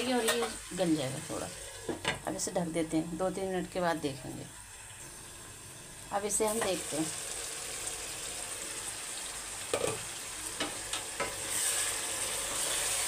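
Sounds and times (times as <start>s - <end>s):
food sizzling in a pan: 0.0s - 13.0s
utensils clinking against pan: 0.1s - 0.6s.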